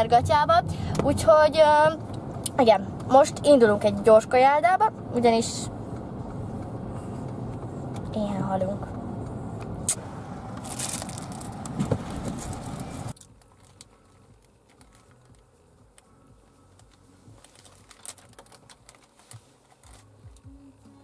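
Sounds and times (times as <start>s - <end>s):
car noise: 0.0s - 21.0s
paper wrapper crinkling: 10.6s - 15.4s, 16.8s - 20.1s.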